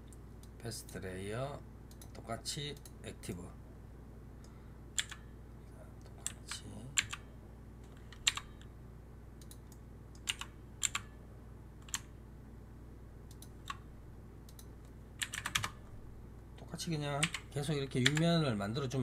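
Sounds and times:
steady low hum: 0.0 - 19.0
keyboard and mouse clicks: 5.0 - 5.2, 7.9 - 8.7, 9.4 - 11.1, 13.3 - 13.8, 14.5 - 15.8.

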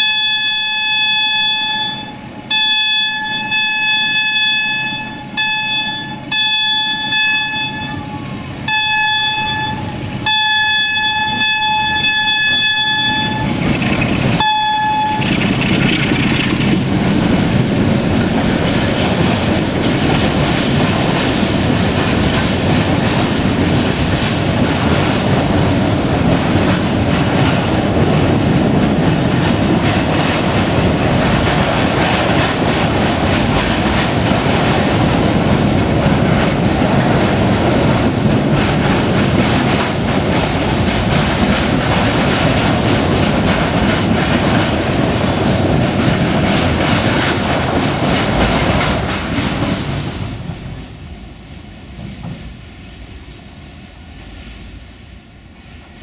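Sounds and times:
train horn blast: 0.0 - 13.6, 14.4 - 15.4
train wheels on track: 0.0 - 56.0.

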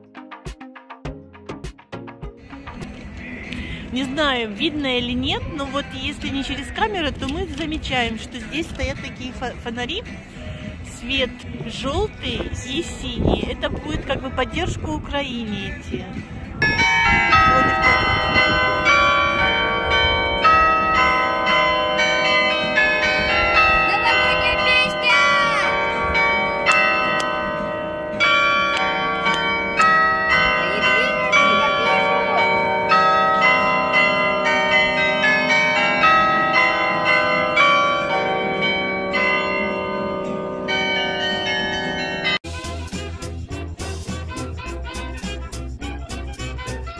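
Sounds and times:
carillon bells playing melody: 16.6 - 42.5.

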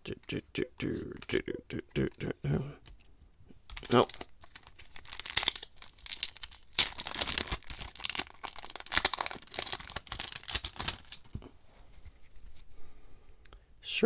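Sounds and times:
foil wrapper tearing and crinkling: 3.7 - 11.4.

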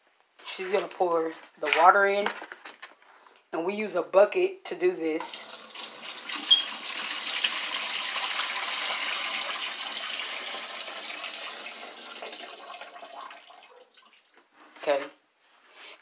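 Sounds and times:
water poured into tub splashing: 5.2 - 14.3.

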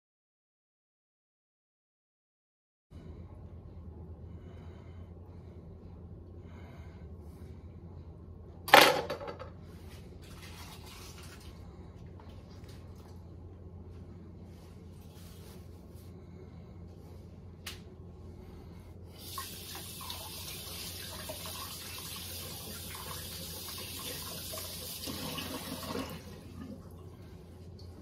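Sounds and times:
faucet water splashing: 19.2 - 27.0.

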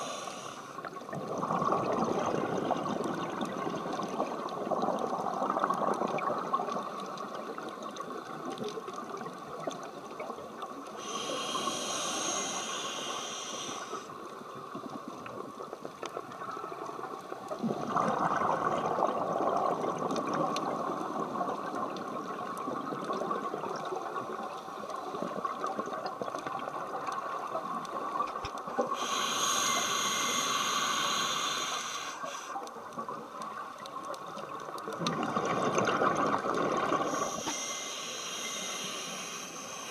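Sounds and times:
regulator breath hissing: 0.0 - 0.8, 11.0 - 14.1, 28.9 - 32.6, 37.0 - 39.9
underwater bubble noise: 0.0 - 39.9.

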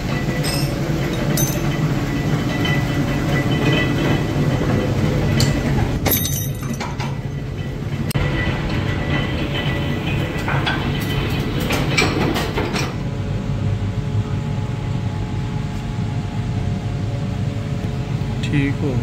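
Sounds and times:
bolt-threading machine rumbling: 0.0 - 13.1.

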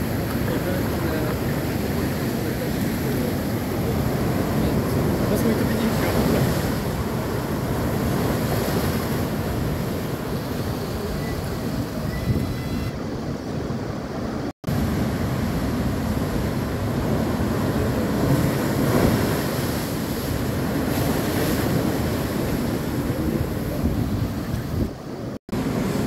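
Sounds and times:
surf breaking against seawall: 0.0 - 12.5, 14.7 - 26.0
seawater rushing across ramp: 14.3 - 25.0.

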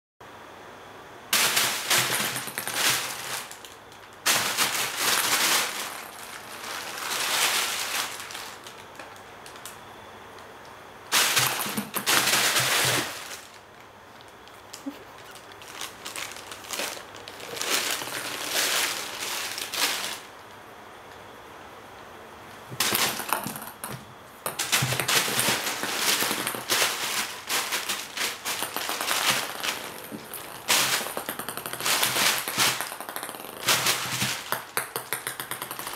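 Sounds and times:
plastic bag crackling: 1.4 - 9.8, 11.1 - 20.5, 24.5 - 35.9.

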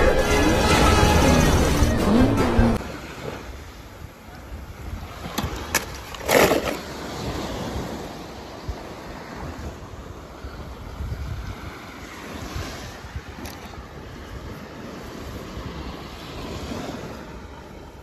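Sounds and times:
wind noise on microphone: 2.8 - 18.0
toy car splashing into water: 5.3 - 6.9.

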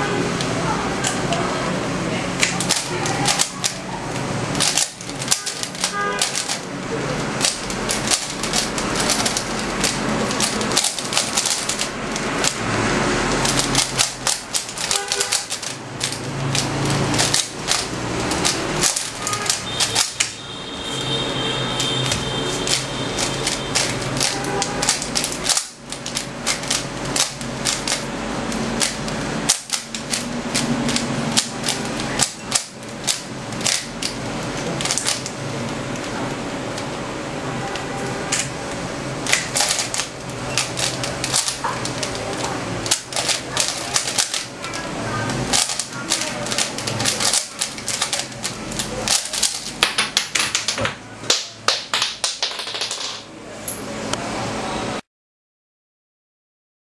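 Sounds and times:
puzzle cube plastic clicks: 2.4 - 6.7, 7.4 - 12.6, 13.3 - 20.4, 22.6 - 34.2, 34.8 - 35.3, 39.3 - 53.0.

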